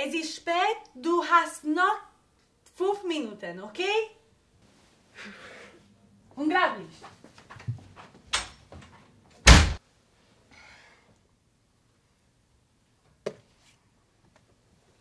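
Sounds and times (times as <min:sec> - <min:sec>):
door slamming shut: 0:09.4 - 0:09.8.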